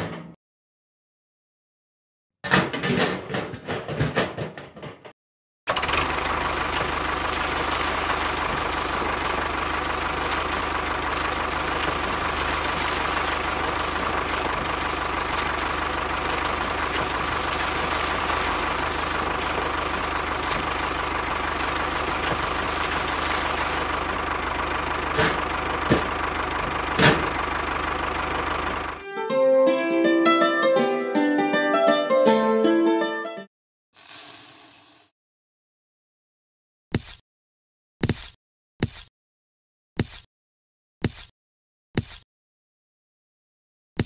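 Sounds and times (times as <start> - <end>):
cultivator dragging through sand: 5.7 - 28.9.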